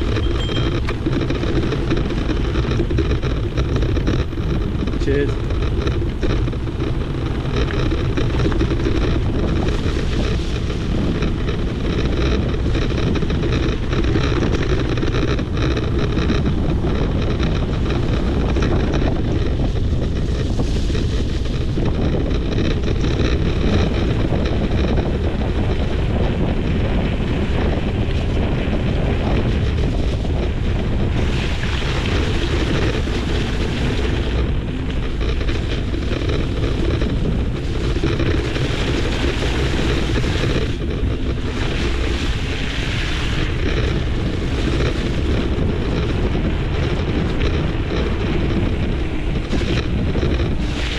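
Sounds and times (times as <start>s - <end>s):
low rumble with rattle: 0.0s - 50.9s
wind buffeting microphone: 0.0s - 50.9s.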